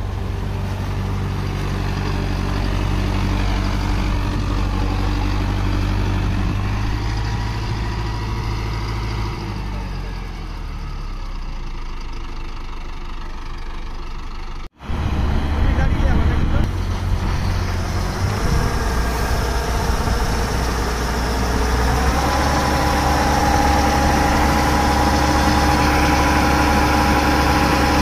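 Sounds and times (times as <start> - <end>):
tractor diesel engine under load: 0.0 - 28.0.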